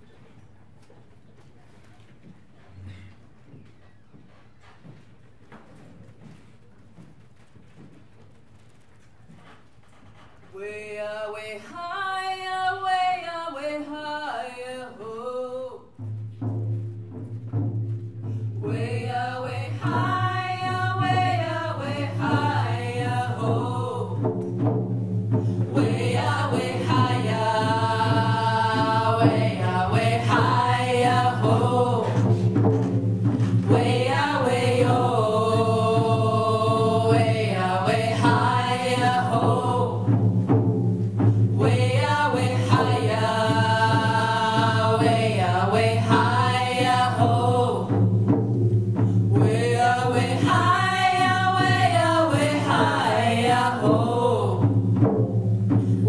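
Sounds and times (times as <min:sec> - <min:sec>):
women singing a chant: 0:10.6 - 0:16.0, 0:18.6 - 0:24.7, 0:25.3 - 0:40.3, 0:41.2 - 0:48.4, 0:49.0 - 0:55.1
hand drums: 0:15.9 - 0:56.0.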